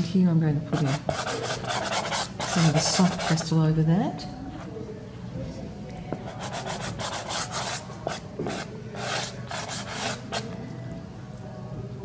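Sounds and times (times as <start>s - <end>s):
pastel scraping on paper: 0.8s - 3.4s, 6.3s - 10.4s.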